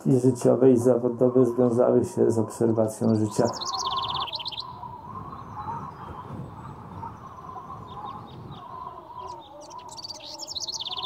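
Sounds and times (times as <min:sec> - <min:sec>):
songbirds singing: 0:00.0 - 0:11.0
rapid high bird trill: 0:02.7 - 0:11.0.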